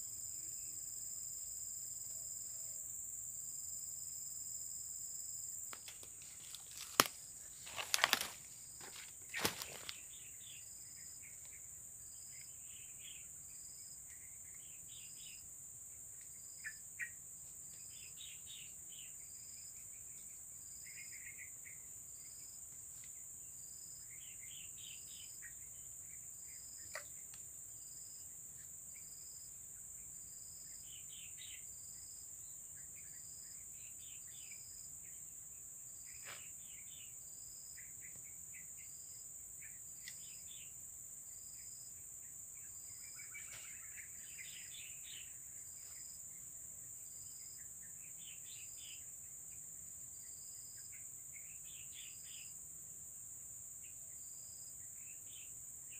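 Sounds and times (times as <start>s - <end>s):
insect chirp: 0.0s - 55.9s
insects buzzing: 0.0s - 55.9s.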